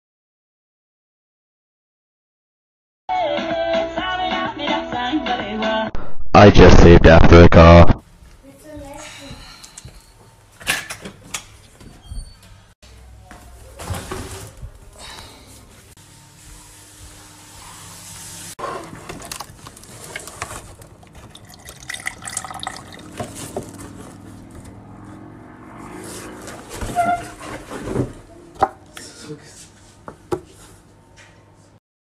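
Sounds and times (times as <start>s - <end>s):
cardboard and plastic packaging handled: 18.8s - 21.3s.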